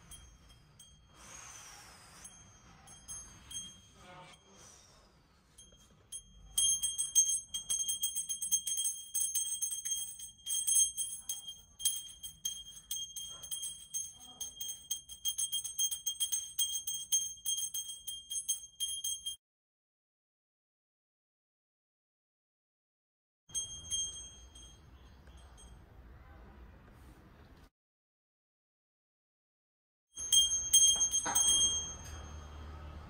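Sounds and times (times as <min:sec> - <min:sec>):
brass hand bell ringing: 0:00.0 - 0:04.8, 0:05.5 - 0:19.4, 0:23.5 - 0:25.8, 0:30.2 - 0:33.0.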